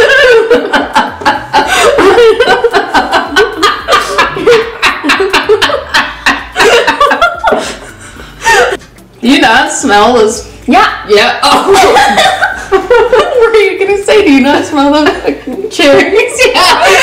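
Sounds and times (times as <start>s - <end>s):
women giggling: 0.0s - 8.8s, 11.7s - 13.4s.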